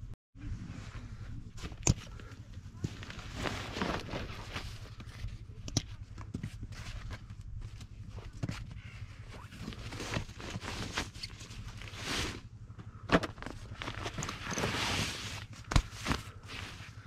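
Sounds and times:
fabric rustling and swishing: 2.7s - 5.2s, 13.7s - 17.0s.

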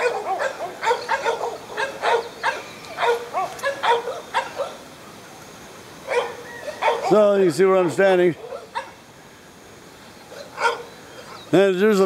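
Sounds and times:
dogs barking: 0.0s - 4.8s, 6.0s - 9.0s, 10.3s - 11.5s.

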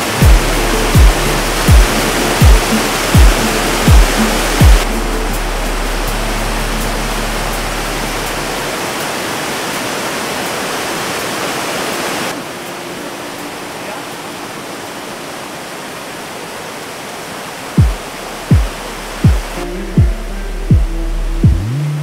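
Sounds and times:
waterfall rushing over rocks: 0.0s - 22.0s
loud low thump: 0.2s - 4.9s.

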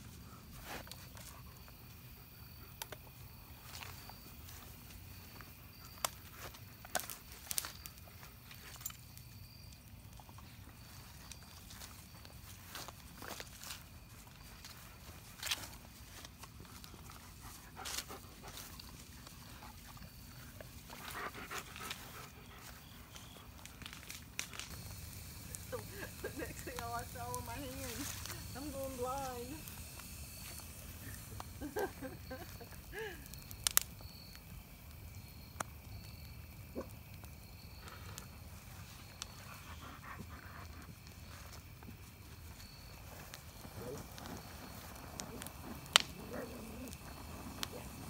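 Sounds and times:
campfire burning: 0.0s - 48.0s
fire popping: 0.0s - 48.0s
dogs sniffing in grass: 14.7s - 23.6s.

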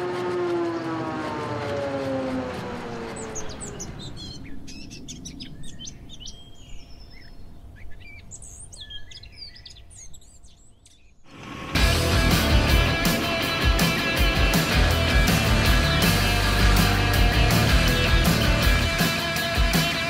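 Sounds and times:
droning tone sliding down: 0.0s - 4.6s, 11.3s - 20.0s
birds chirping and singing: 2.7s - 20.0s.

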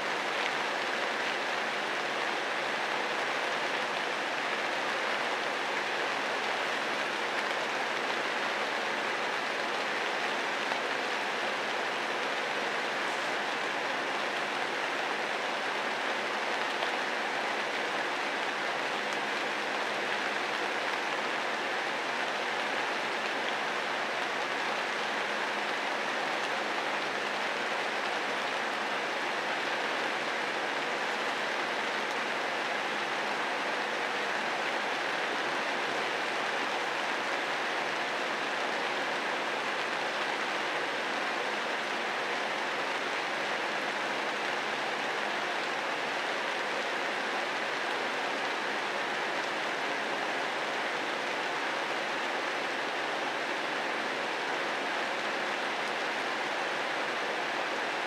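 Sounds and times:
steady rain falling: 0.0s - 58.0s.

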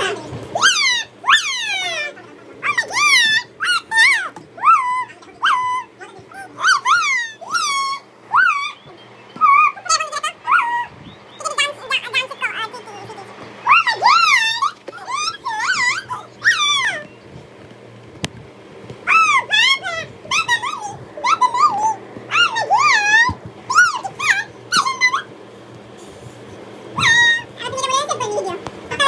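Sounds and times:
baby squealing: 0.0s - 10.9s, 13.7s - 17.1s, 19.1s - 25.3s, 27.0s - 27.5s.

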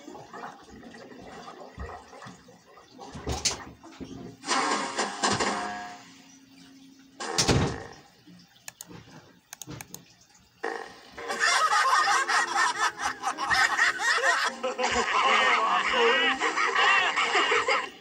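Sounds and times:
faint clicks: 8.3s - 10.4s.

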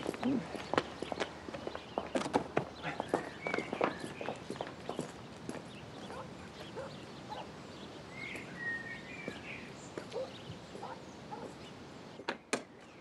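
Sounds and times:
faint footsteps: 0.0s - 7.0s
birds chirping: 0.0s - 13.0s.

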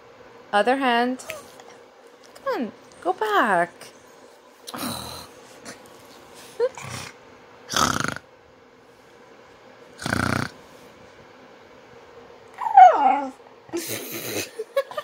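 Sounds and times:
dog snorting huffs: 10.0s - 10.6s.

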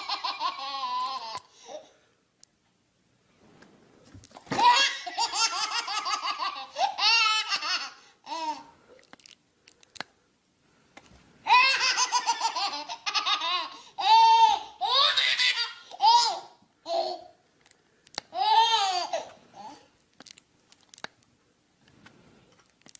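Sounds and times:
baby giggling: 0.0s - 1.9s, 4.5s - 8.7s, 11.5s - 17.4s, 18.3s - 19.8s.

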